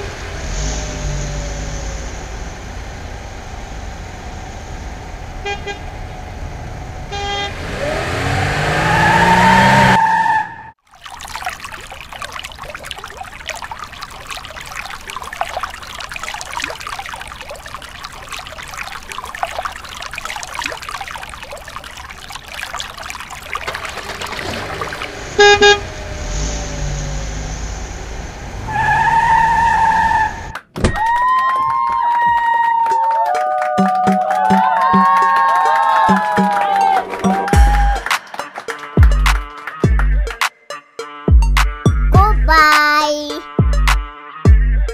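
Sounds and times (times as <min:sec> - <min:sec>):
horn honk: 0:05.4 - 0:06.0, 0:07.1 - 0:07.9, 0:25.3 - 0:26.0
vehicle sound effect revving: 0:07.4 - 0:10.3.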